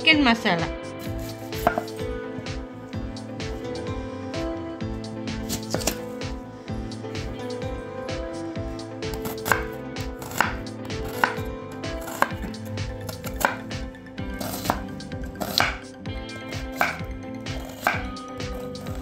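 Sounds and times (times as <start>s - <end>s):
knife slicing onion on board: 1.0s - 2.0s, 5.4s - 6.0s, 9.1s - 15.8s, 16.6s - 19.0s.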